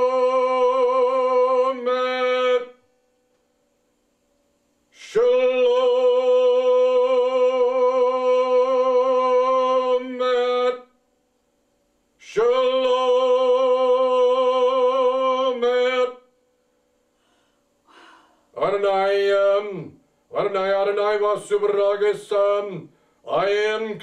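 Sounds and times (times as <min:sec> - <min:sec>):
man chanting a long note: 0:00.0 - 0:02.8.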